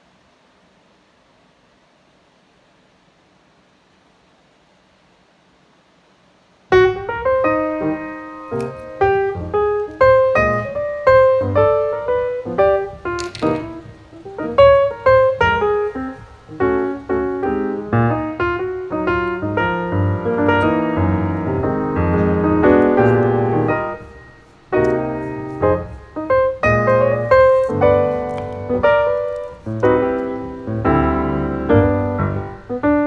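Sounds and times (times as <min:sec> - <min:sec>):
piano music: 0:06.7 - 0:33.0.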